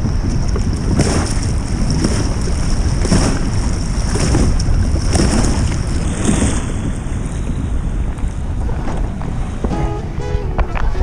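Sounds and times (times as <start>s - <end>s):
paddle strokes splashing water: 0.0s - 6.9s
wind rumble on microphone: 0.0s - 11.0s.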